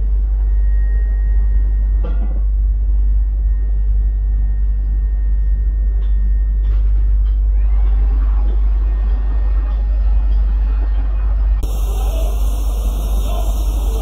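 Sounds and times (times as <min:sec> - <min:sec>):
faint high-pitched whine: 0:11.6 - 0:14.0
steady low rumble: 0:11.6 - 0:14.0.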